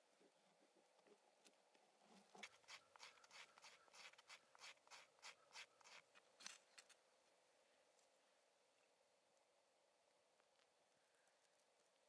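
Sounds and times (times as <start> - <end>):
knife scraping wood: 2.2 - 7.0.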